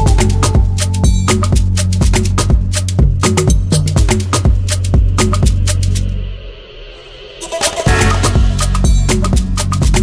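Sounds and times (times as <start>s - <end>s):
upbeat music with percussive beat: 0.0s - 10.0s.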